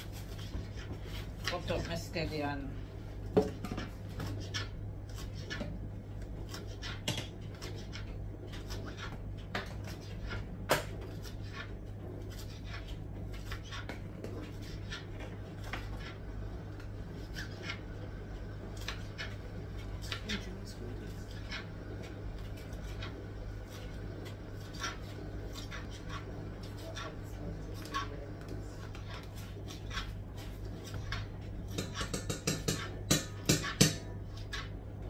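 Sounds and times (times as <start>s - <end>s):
knife chopping on cutting board: 31.7s - 34.1s.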